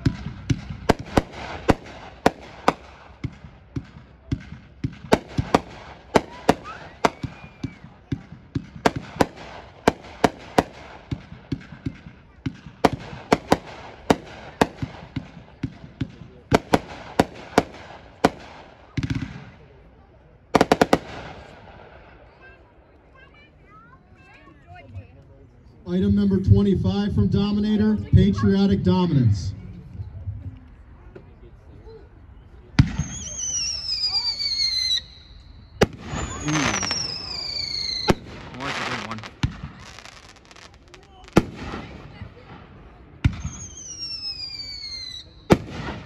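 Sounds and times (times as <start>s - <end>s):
fireworks cake sharp bangs: 0.0s - 22.5s, 32.7s - 46.0s.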